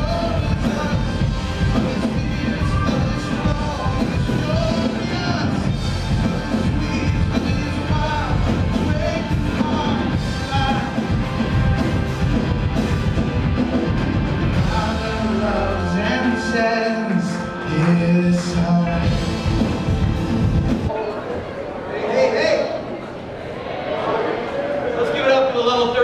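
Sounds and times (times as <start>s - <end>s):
person singing: 0.0s - 11.6s, 14.5s - 19.6s
bass guitar: 0.0s - 20.9s
drums: 0.0s - 21.0s
worship band playing: 0.0s - 21.7s
keyboard notes: 0.0s - 21.8s.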